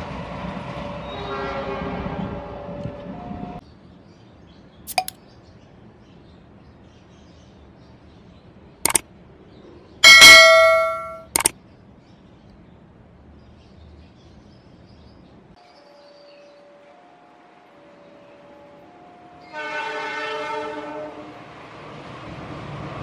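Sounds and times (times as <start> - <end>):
train horn: 0.6 - 3.6, 15.8 - 21.5
mouse clicks: 4.9 - 5.2, 11.3 - 11.5
notification bell ding: 10.0 - 11.5.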